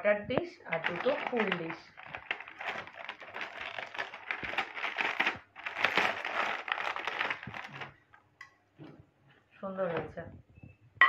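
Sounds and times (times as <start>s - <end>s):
plastic wrap crinkling: 0.7s - 8.1s.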